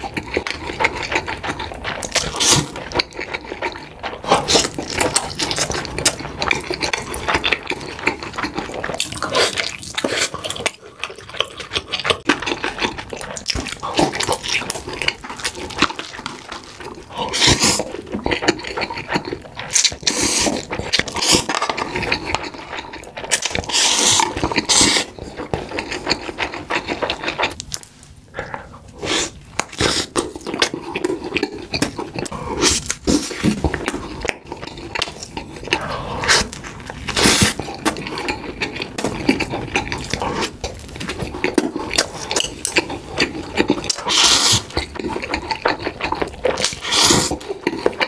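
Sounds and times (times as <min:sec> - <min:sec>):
wet chewing and smacking: 0:00.0 - 0:48.0
noodle slurping: 0:28.4 - 0:48.0.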